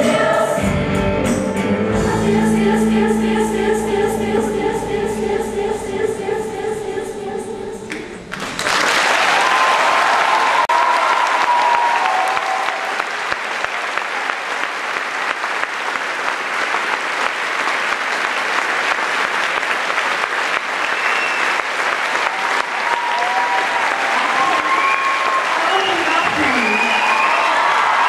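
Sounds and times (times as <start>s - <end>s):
audience applauding: 8.3s - 28.0s.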